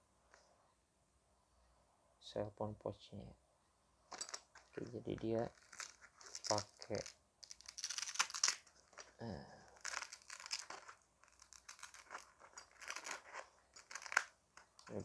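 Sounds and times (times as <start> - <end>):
plastic packaging crinkling: 4.1 - 14.9.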